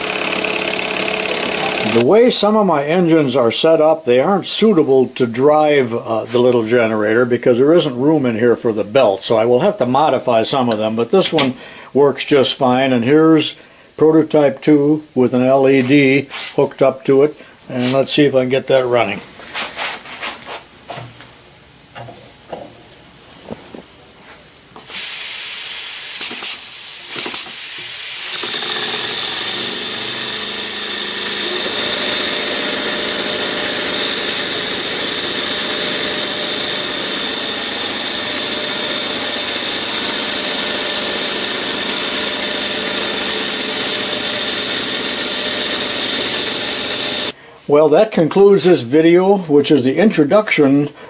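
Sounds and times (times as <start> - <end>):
model steam engine hissing: 0.0 - 2.5, 24.8 - 47.4.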